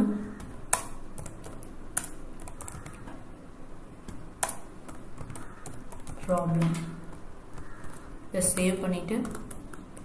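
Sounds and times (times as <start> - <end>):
computer keyboard typing: 0.3 - 3.2, 4.0 - 10.0.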